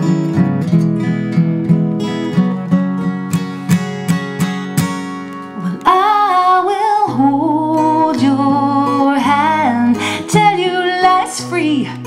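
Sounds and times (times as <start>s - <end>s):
acoustic guitar strumming: 0.0s - 12.0s
person singing wordless melody: 5.6s - 12.0s.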